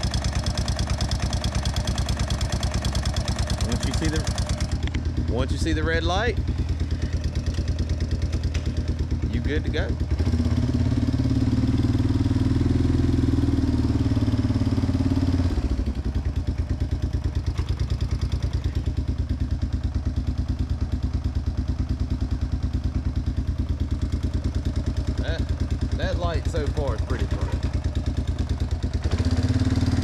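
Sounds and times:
atv engine running: 0.0s - 30.0s.

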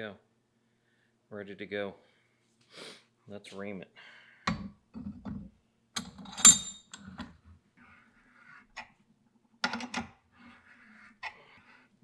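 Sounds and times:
metal tools clinking and rattling: 6.0s - 7.1s.

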